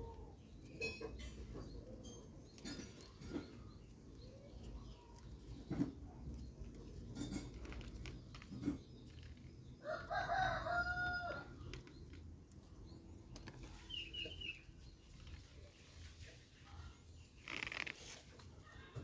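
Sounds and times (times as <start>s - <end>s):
rooster crowing: 9.8s - 11.5s.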